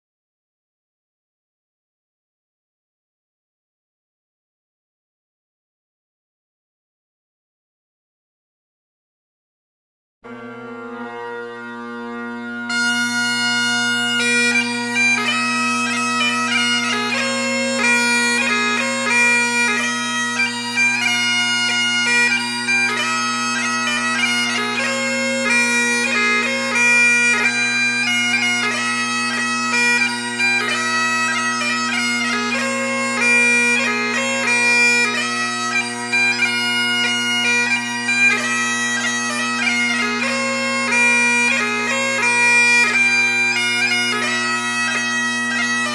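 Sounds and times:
bagpipe music: 10.2s - 45.9s.

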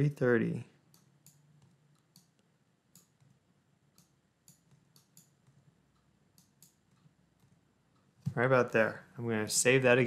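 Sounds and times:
computer mouse clicks: 0.9s - 8.4s.

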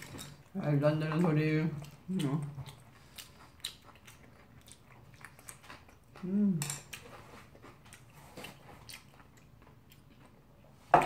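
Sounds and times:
chewing: 0.0s - 10.8s
person humming: 6.2s - 6.7s.

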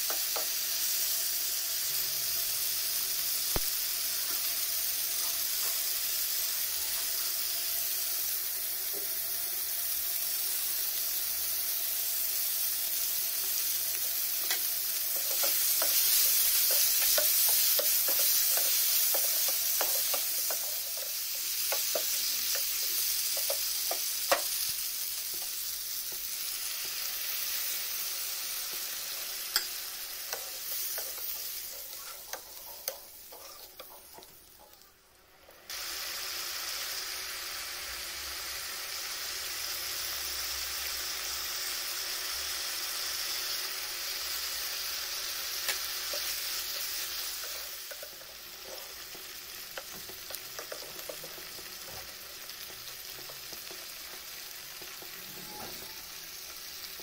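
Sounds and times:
food sizzling in a frying pan: 0.0s - 57.0s
metal spatula scraping a pan: 28.7s - 34.8s, 54.8s - 56.2s.

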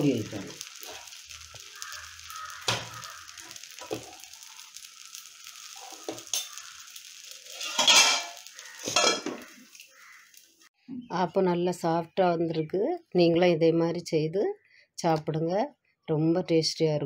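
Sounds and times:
batter sizzling in a hot pan: 0.0s - 10.7s.

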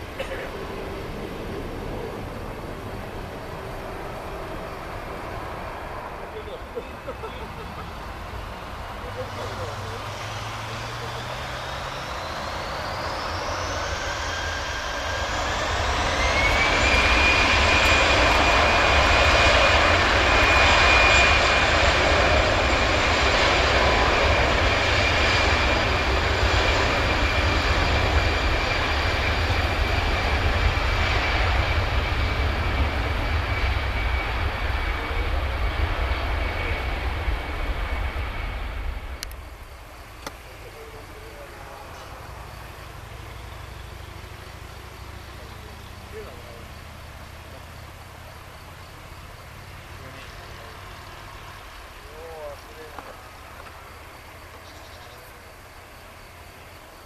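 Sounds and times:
jet engines spooling up: 0.0s - 57.0s.

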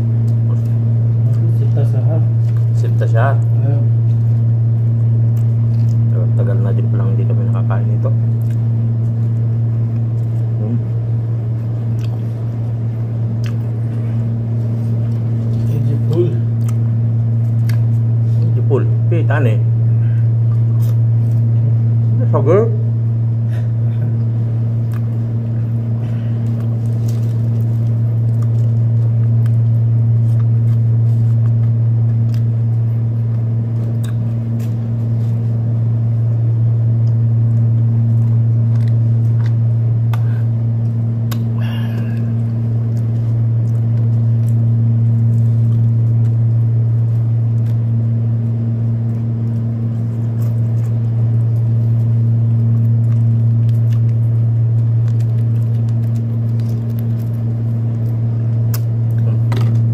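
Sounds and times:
air conditioner humming: 0.0s - 59.9s
chewing clicks: 5.0s - 6.1s, 8.3s - 10.5s, 11.8s - 12.3s, 13.4s - 13.8s, 14.9s - 16.9s, 17.5s - 18.0s, 24.8s - 25.2s, 26.4s - 34.8s, 37.0s - 41.5s, 42.4s - 48.0s, 48.9s - 59.8s.

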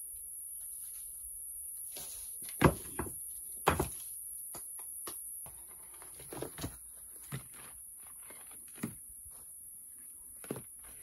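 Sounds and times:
high-pitched hiss: 0.0s - 5.6s.

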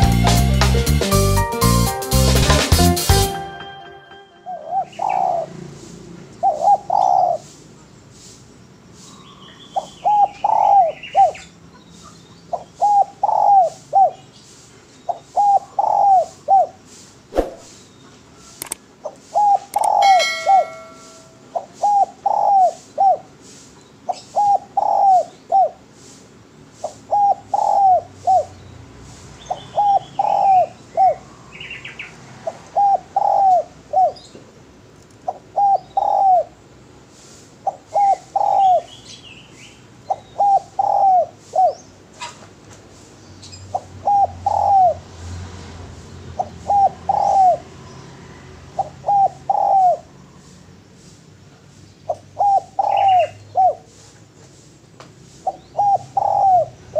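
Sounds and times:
dove cooing: 4.5s - 5.6s, 6.4s - 7.5s, 9.8s - 11.4s, 12.6s - 14.2s, 15.1s - 16.8s, 19.3s - 23.4s, 24.1s - 25.9s, 26.8s - 28.5s, 29.8s - 31.2s, 32.7s - 34.2s, 35.3s - 36.6s, 37.6s - 38.9s, 40.1s - 42.4s, 43.7s - 45.1s, 46.4s - 47.7s, 48.8s - 50.1s, 52.1s - 54.0s, 55.5s - 56.9s
faint bird chirps: 17.3s - 23.1s.

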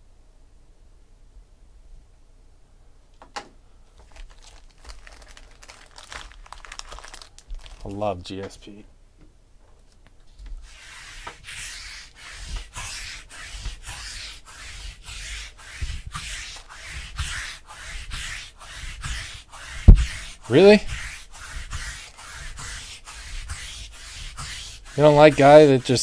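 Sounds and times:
rhythmic rubbing strokes: 10.6s - 26.0s.

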